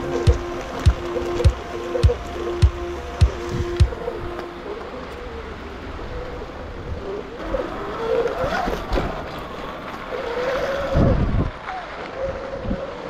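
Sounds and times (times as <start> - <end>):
low rumble: 0.0 - 5.8.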